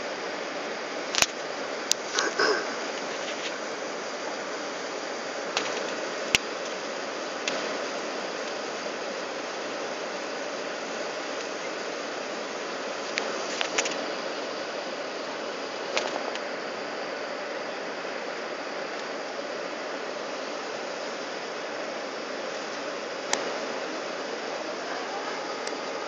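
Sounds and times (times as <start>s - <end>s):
airliner cabin noise: 0.0s - 26.0s.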